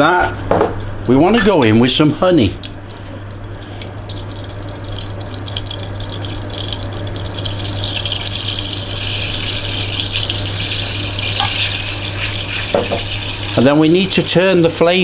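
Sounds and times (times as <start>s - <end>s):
low steady hum: 0.0s - 15.0s
butter sizzling and crackling: 2.6s - 14.4s.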